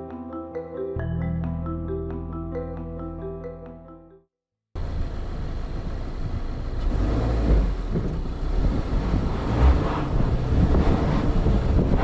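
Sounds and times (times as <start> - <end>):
car engine and tyre rumble: 4.7 - 12.0
wind buffeting microphone: 8.0 - 12.0.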